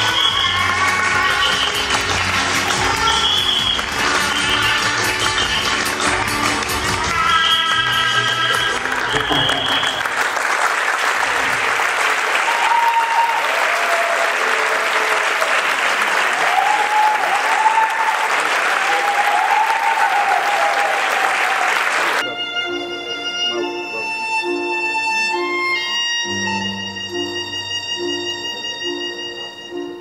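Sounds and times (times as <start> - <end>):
audience applause: 0.0 - 22.2
violin playing long notes: 22.2 - 30.0.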